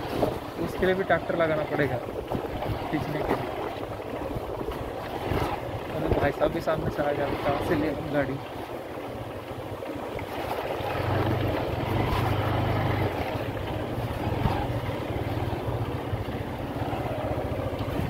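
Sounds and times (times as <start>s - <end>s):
wind noise on microphone: 0.0s - 1.0s, 1.9s - 7.0s, 14.0s - 14.9s
motorcycle engine running: 0.0s - 18.0s.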